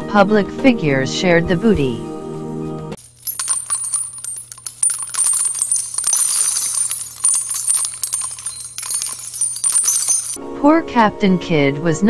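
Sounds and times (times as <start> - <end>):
metallic clinks and jingles: 3.0 - 10.4.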